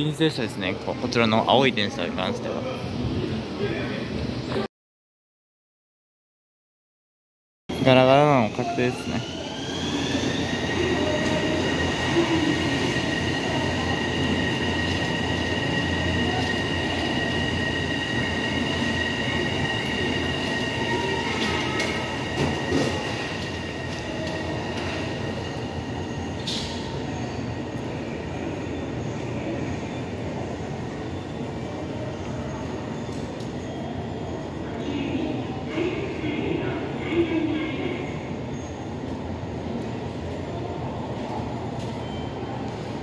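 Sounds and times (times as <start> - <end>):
train high whine: 7.7 - 39.2.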